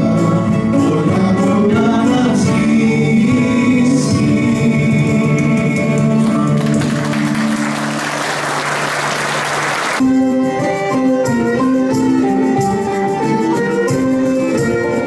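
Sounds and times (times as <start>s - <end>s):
plucked string folk tune: 0.0s - 8.0s, 10.0s - 15.0s
band music held notes: 0.0s - 15.0s
people applauding: 6.2s - 10.0s.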